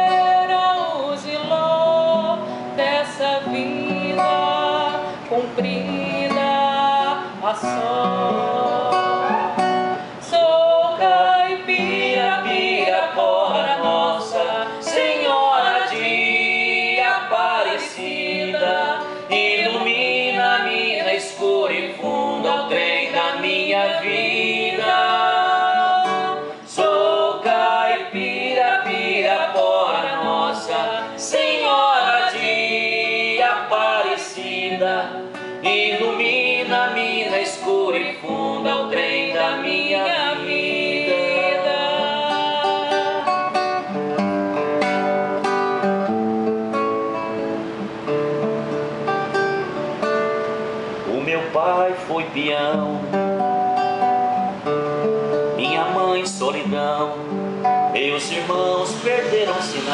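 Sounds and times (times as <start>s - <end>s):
woman singing: 0.0s - 43.9s, 57.9s - 59.9s
acoustic guitar: 0.0s - 59.9s.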